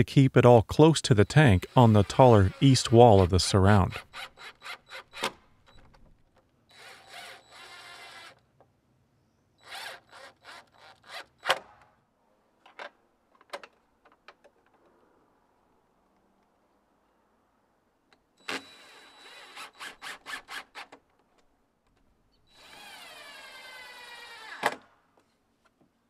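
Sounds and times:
cordless drill driving screws: 1.4 - 5.4, 6.7 - 8.4, 9.6 - 11.5, 18.5 - 21.0, 22.5 - 24.8.

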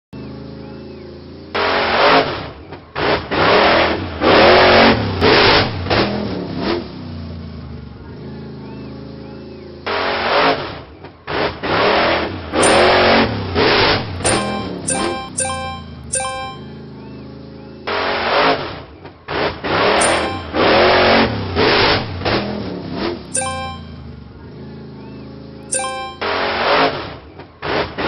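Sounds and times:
cartoon truck engine revving: 0.2 - 28.0
bright coin chimes: 12.6 - 13.3, 14.2 - 16.9, 20.0 - 21.0, 23.4 - 24.2, 25.7 - 26.6.

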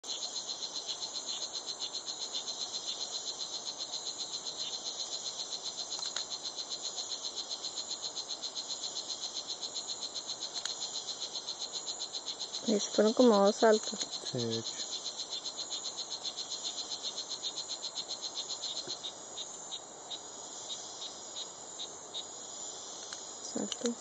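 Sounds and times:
frog call through small speaker: 12.6 - 14.9.

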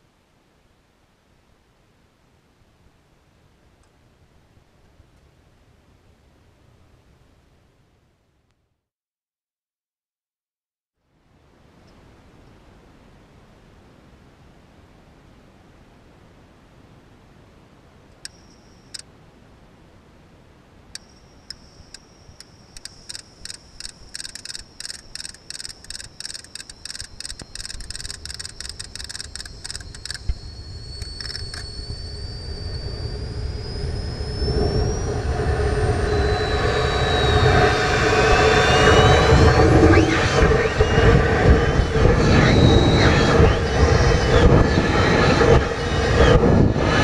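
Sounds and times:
sharp clicks: 21.0 - 30.4, 31.0 - 31.7
gliding whistles: 21.0 - 47.0.

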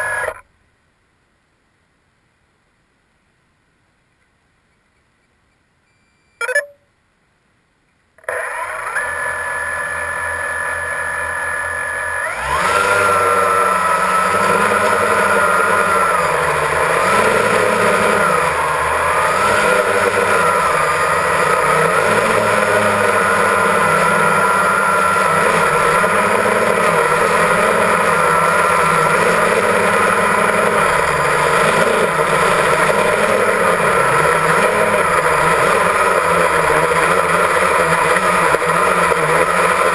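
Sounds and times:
drone motors whining: 0.0 - 0.4, 8.2 - 39.9.

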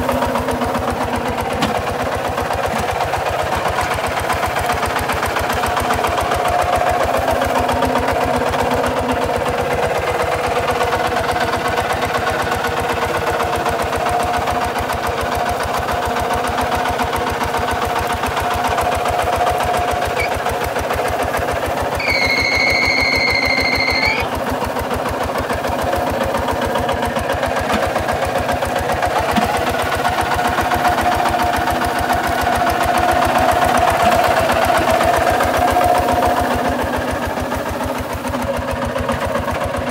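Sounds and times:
diesel engine running under load: 0.0 - 39.9
high whistle-like tone: 22.0 - 24.3.

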